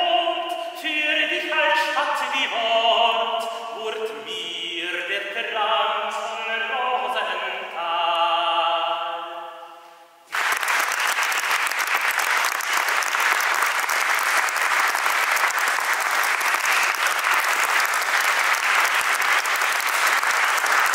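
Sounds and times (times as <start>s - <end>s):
men singing polyphony: 0.0s - 9.7s
audience applause: 10.3s - 20.9s.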